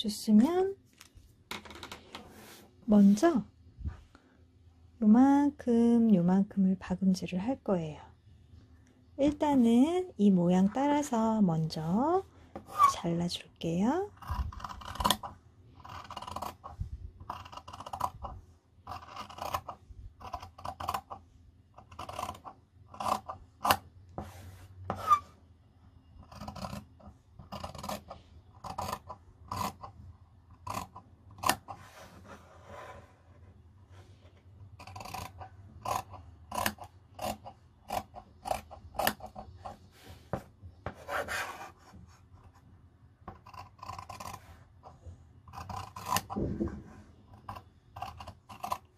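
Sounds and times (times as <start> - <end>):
scissors snipping fabric: 18.9 - 21.2, 21.8 - 23.8, 26.3 - 29.9, 30.6 - 31.8, 34.8 - 39.4, 43.3 - 44.4, 45.5 - 46.4, 47.3 - 48.9.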